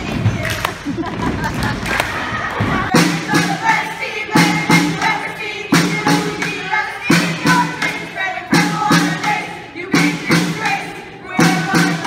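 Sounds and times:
marching snare drum: 2.6s - 12.0s.

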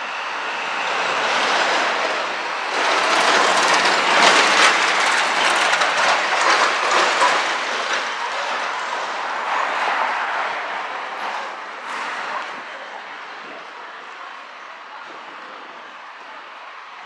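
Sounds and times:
rail wheels clattering: 0.5s - 12.8s.

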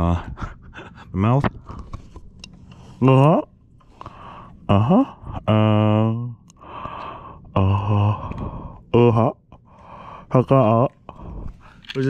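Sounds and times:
breath: 3.8s - 4.6s, 6.6s - 7.5s, 8.1s - 8.8s, 9.7s - 10.3s, 11.1s - 11.9s
man humming with closed mouth: 7.6s - 8.5s.

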